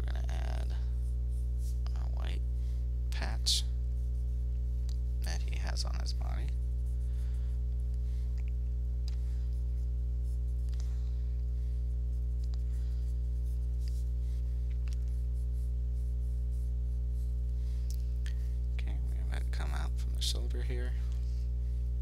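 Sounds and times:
steady low hum: 0.0 - 22.0
pencil scratching on paper: 11.9 - 14.2.

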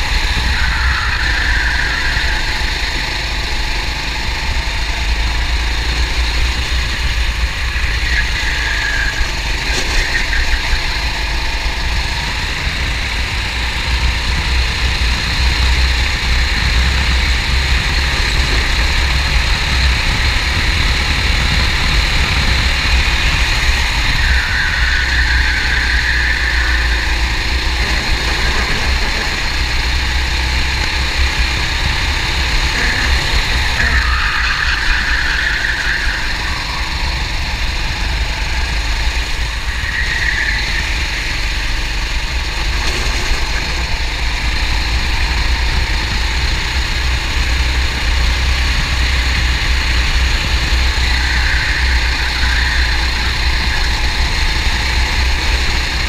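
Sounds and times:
racing kart engine running: 0.0 - 56.0.

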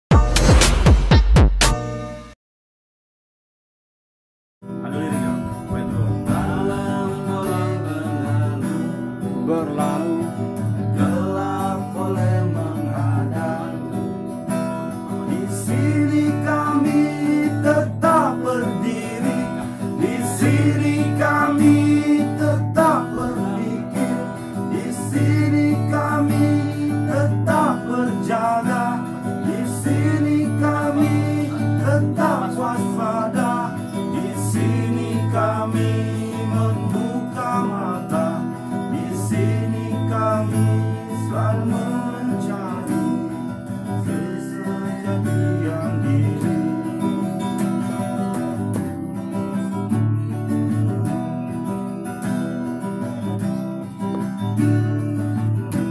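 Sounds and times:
acoustic guitar strumming: 0.1 - 2.3, 4.6 - 55.9
man singing: 4.7 - 14.2, 15.1 - 47.4.

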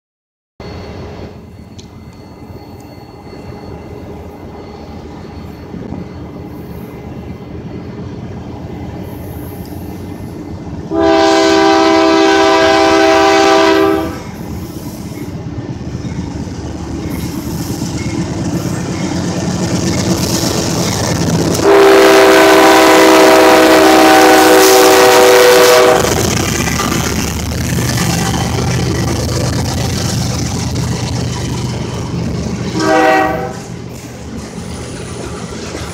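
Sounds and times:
diesel locomotive rumble: 0.6 - 35.9
train wheels rolling: 0.6 - 35.9
train horn blasts: 10.9 - 14.3, 21.5 - 26.3, 32.8 - 33.7.

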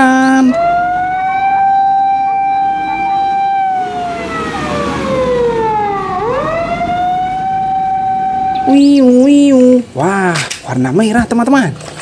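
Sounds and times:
fire truck siren wailing: 0.0 - 9.6.

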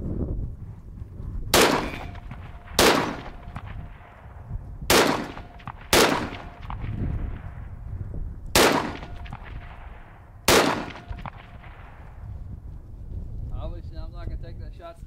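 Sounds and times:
rifle shots with echo: 1.5 - 7.9, 8.5 - 12.2.

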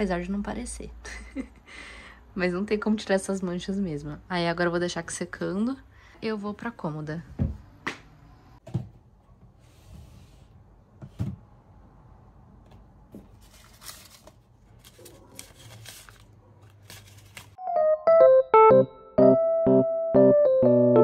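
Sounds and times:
soft rustling: 13.2 - 17.6
electric piano music: 17.6 - 21.0.

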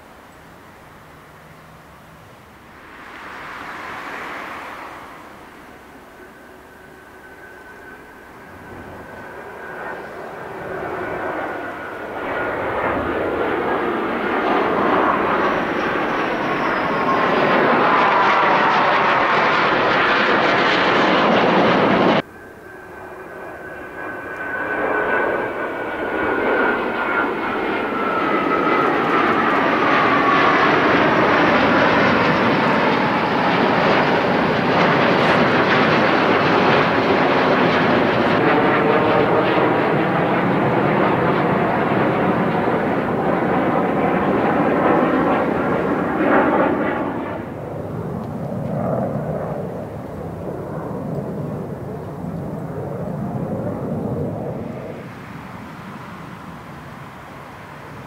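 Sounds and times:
fighter jets flying overhead: 0.6 - 58.0.

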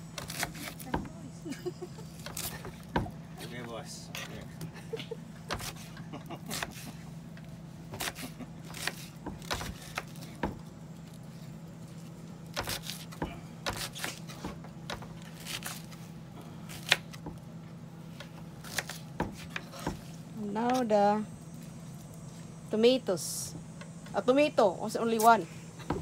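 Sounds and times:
steady low hum: 0.0 - 26.0
knife cutting onion: 0.1 - 1.1, 5.4 - 7.0, 7.9 - 10.6, 12.5 - 16.0, 16.6 - 17.4, 18.2 - 20.9.

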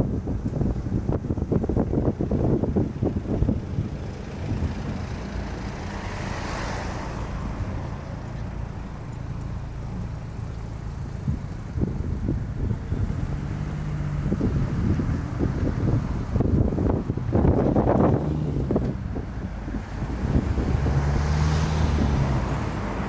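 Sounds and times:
low rumble of traffic: 0.0 - 23.0
wind buffeting microphone: 0.0 - 23.0
car driving by: 4.1 - 10.5, 13.0 - 23.0.

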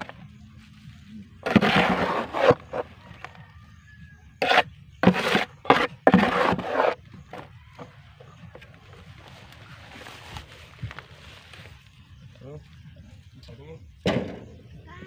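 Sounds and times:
scraping and rustling: 0.0 - 3.5, 4.4 - 11.9.

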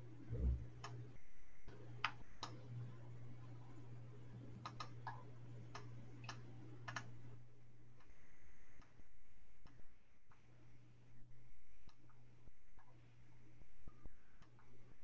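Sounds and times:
low electrical hum: 0.0 - 15.0
computer mouse clicking: 4.6 - 7.1.

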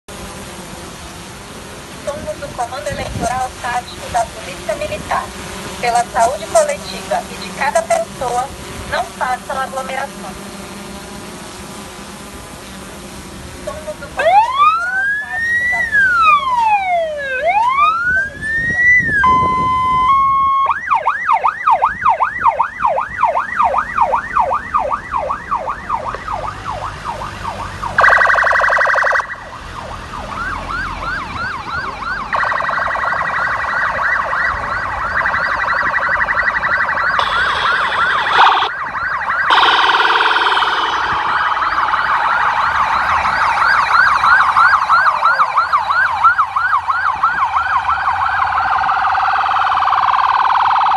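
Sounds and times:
buzzy siren warble: 0.1 - 50.9
police sirens wailing and yelping: 2.1 - 10.4, 13.7 - 50.9.

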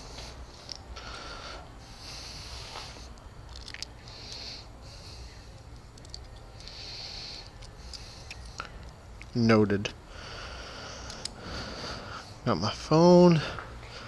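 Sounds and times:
close breathing puffs: 0.0 - 3.2, 3.9 - 5.8, 6.5 - 8.9, 10.1 - 12.5, 13.4 - 14.0
low steady hum: 0.0 - 14.0.

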